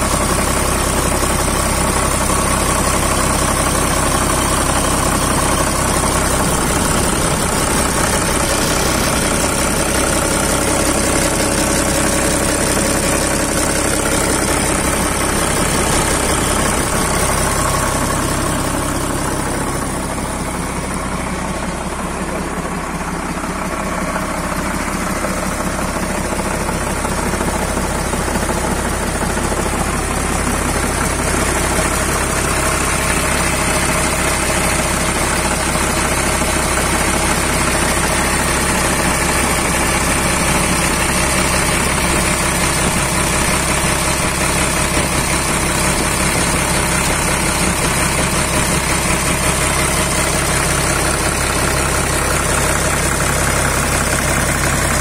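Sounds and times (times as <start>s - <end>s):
tractor diesel engine idling: 0.0s - 55.0s.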